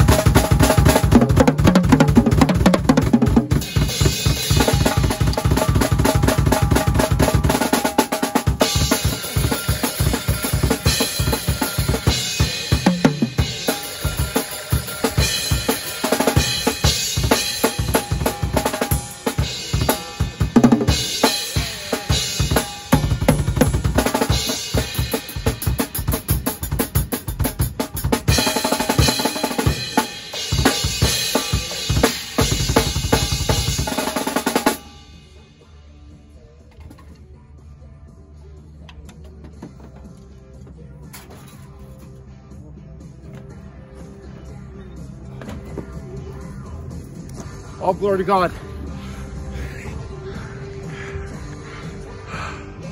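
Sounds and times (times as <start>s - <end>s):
acoustic drum kit: 0.0s - 35.5s
crashing cymbals: 8.6s - 23.1s.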